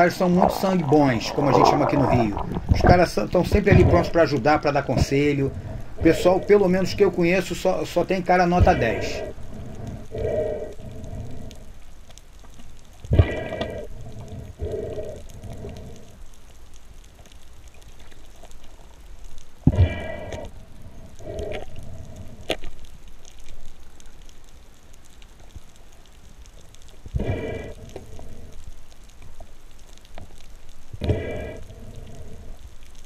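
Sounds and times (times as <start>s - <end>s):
breathing through a snorkel: 0.0s - 2.8s, 5.2s - 6.6s, 8.6s - 11.8s, 13.1s - 16.2s, 19.7s - 22.6s, 27.1s - 28.8s, 31.0s - 32.7s.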